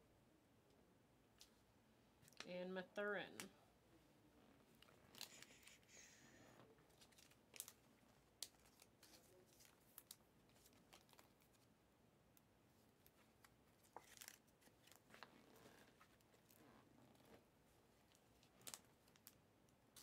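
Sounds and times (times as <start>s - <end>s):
trading cards rustling: 4.8s - 6.2s, 6.8s - 11.7s, 13.1s - 16.6s.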